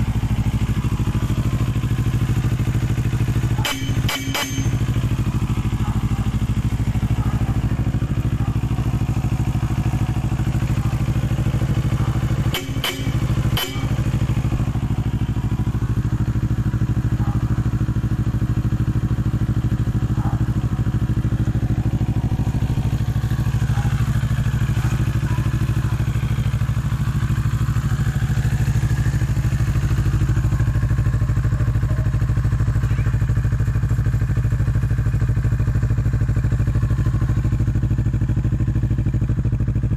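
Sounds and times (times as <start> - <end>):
motorcycle engine idling: 0.0 - 39.9.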